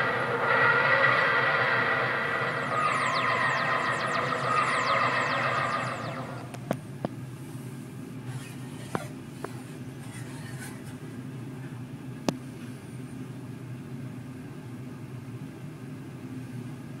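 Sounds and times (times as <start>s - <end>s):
steady low hum: 0.0s - 7.8s.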